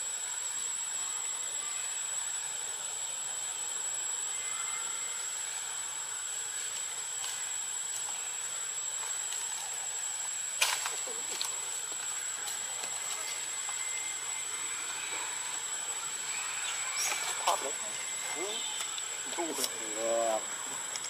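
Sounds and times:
outdoor background hiss: 0.0 - 21.0
thin high steady tone: 0.0 - 21.0.

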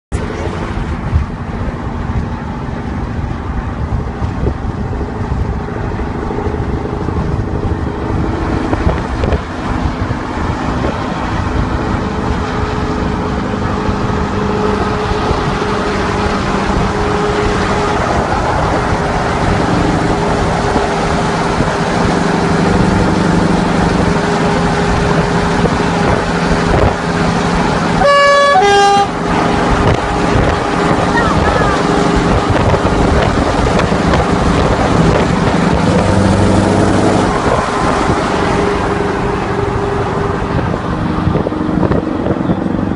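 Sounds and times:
car road and engine drone: 0.1 - 42.9
truck horn two notes: 28.0 - 29.2.

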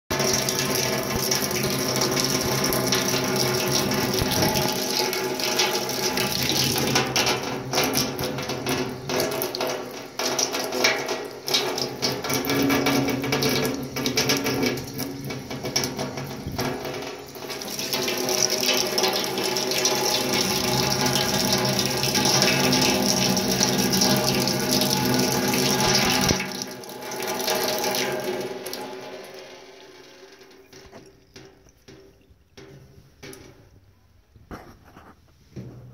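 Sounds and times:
tap water running into sink: 0.1 - 33.8
sharp clicks and knocks: 30.3 - 33.9.

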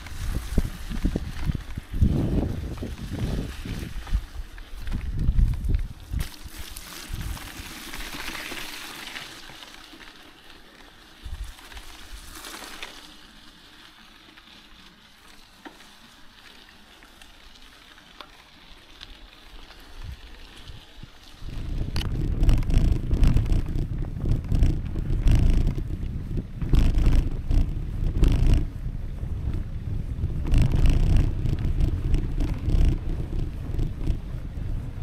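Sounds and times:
bike tyres hissing through puddle: 0.0 - 23.6
small ticks of grit: 0.0 - 28.8, 29.4 - 35.0
tyres rolling on wet gravel: 0.0 - 28.8.

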